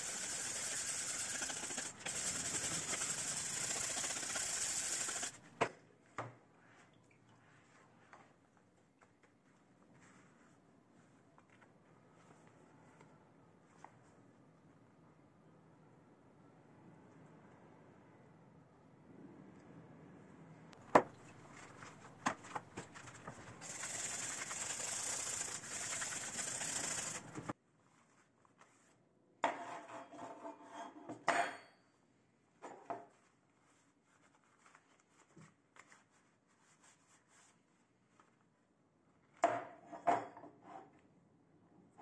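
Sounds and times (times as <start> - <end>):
rubbing noise: 21.4 - 27.5.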